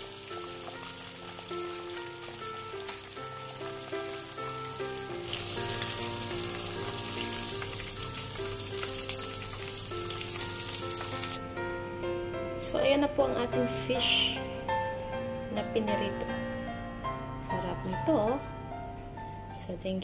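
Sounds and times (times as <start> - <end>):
fish sizzling in oil: 0.0 - 11.4
background music: 0.0 - 20.0.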